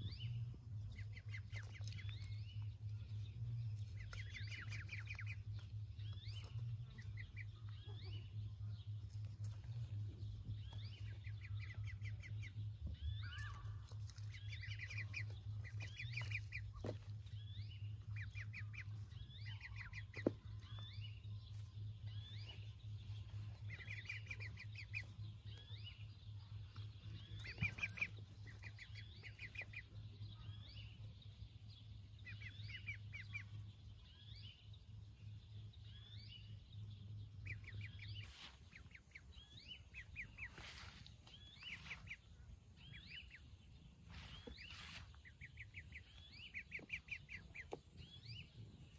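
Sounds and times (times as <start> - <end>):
ducklings peeping: 0.0 - 48.9
steady low hum: 0.0 - 48.9.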